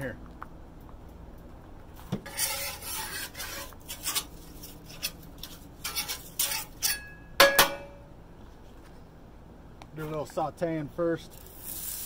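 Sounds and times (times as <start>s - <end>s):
metal spatula scraping griddle: 2.2s - 7.1s, 11.4s - 12.0s.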